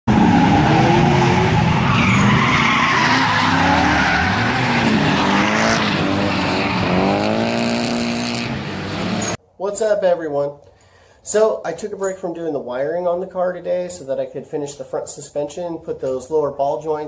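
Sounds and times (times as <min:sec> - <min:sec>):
engines revving: 0:00.1 - 0:09.4
tyre squeal: 0:00.2 - 0:07.0.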